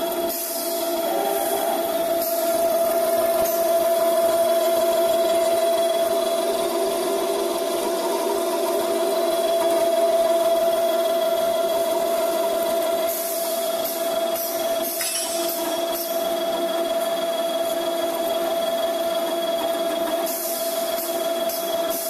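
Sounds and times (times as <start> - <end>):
circular saw cutting metal: 0.0 - 9.5.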